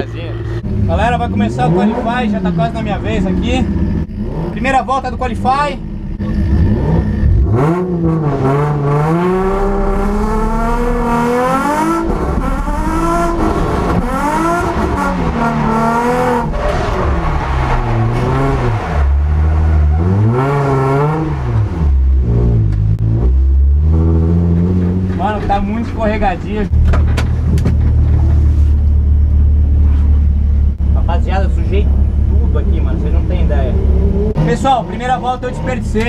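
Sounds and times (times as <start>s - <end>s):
car engine revving hard: 6.2s - 25.2s
deep low rumble: 12.0s - 34.4s.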